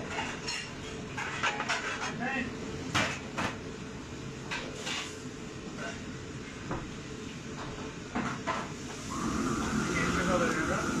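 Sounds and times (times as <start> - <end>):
utensils and cookware clattering: 0.0 - 2.3, 4.5 - 5.2.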